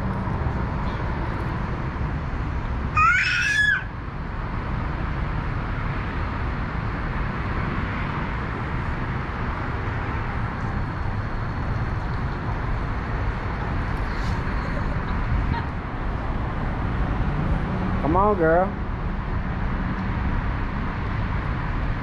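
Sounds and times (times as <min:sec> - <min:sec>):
city traffic rumble: 0:00.0 - 0:22.0.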